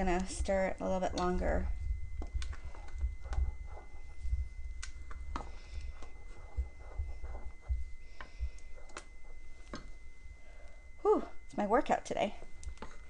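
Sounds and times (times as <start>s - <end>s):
spoon stirring thick paste: 1.0s - 10.1s, 12.6s - 13.0s.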